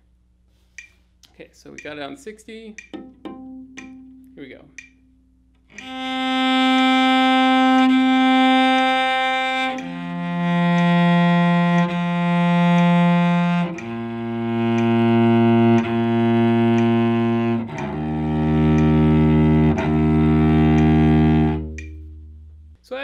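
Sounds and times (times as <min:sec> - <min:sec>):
metronome ticking: 0:01.6 - 0:22.8
cello bowed notes: 0:05.7 - 0:22.8.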